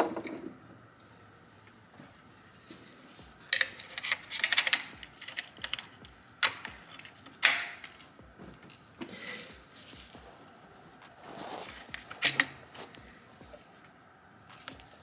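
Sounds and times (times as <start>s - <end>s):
parts clicking and knocking: 3.5s - 9.2s, 11.7s - 13.6s.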